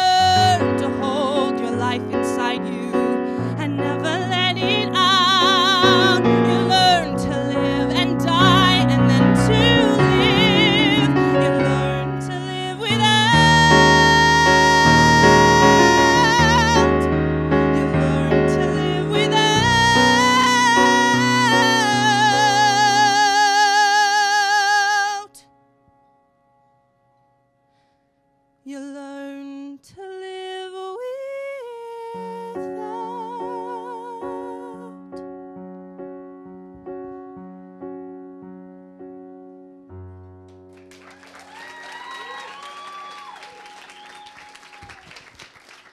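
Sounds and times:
woman singing ballad: 0:00.0 - 0:25.4, 0:28.7 - 0:35.2
keyboard chords: 0:00.0 - 0:28.6
applause and cheers: 0:40.7 - 0:45.9.

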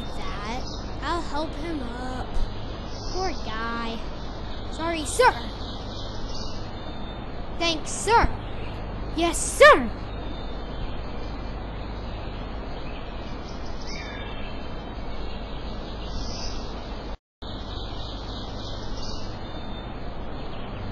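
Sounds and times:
faint chirps: 0:00.0 - 0:11.4.

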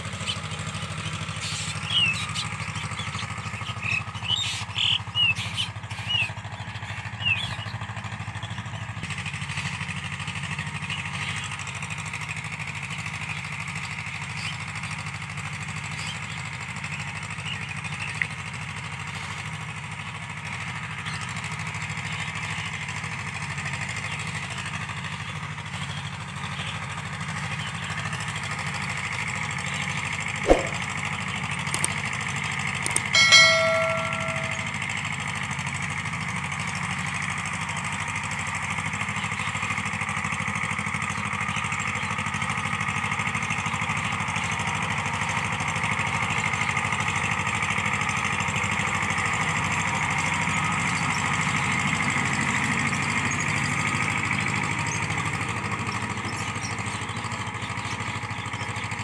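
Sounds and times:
tractor diesel engine running: 0:00.0 - 0:59.0
sharp click: 0:30.5 - 0:30.8, 0:31.8 - 0:32.0, 0:32.9 - 0:34.8
short high chirps: 0:30.5 - 0:30.8, 0:32.9 - 0:34.8.

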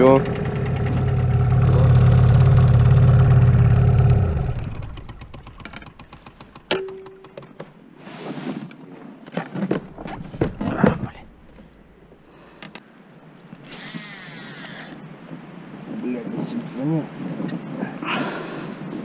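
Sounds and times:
outboard motor running: 0:00.0 - 0:06.7.

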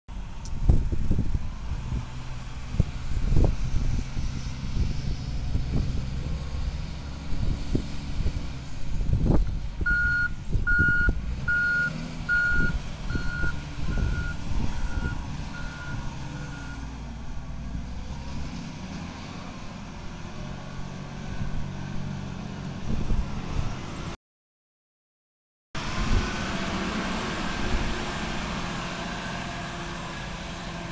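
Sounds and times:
wheel loader diesel engine: 0:00.1 - 0:24.2, 0:25.8 - 0:30.9
reversing alarm beeps: 0:09.9 - 0:16.8.

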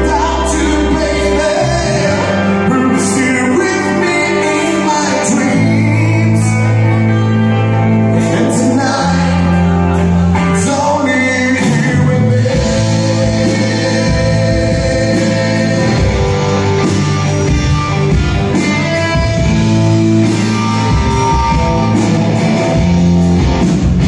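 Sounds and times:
person singing: 0:00.0 - 0:17.4
electric bass low notes: 0:00.0 - 0:24.0
electric guitar: 0:00.0 - 0:24.0.

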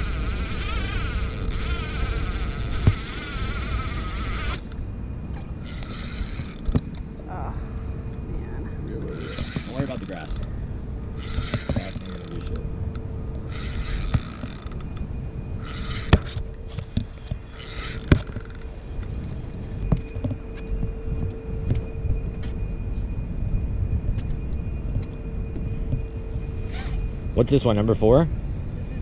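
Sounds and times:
fishing reel cranking: 0:00.0 - 0:04.8, 0:05.6 - 0:07.0, 0:09.1 - 0:10.5, 0:11.2 - 0:12.6, 0:13.5 - 0:15.0, 0:15.6 - 0:16.4, 0:17.5 - 0:18.7, 0:26.1 - 0:29.0
faint steady hum: 0:00.0 - 0:29.0
wind rumbling on microphone: 0:00.0 - 0:29.0.

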